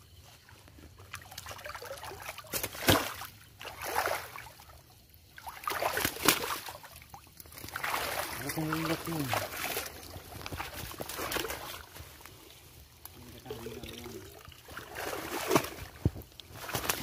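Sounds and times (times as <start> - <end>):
water sloshing around wading person: 0.0 - 17.0
sharp splashes: 1.1 - 4.7, 5.3 - 11.9, 14.6 - 17.0.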